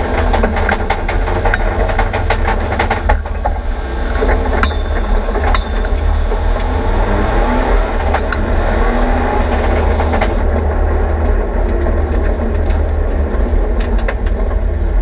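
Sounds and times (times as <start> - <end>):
car engine rumbling: 0.0 - 15.0
stones clattering against car body: 4.2 - 6.8.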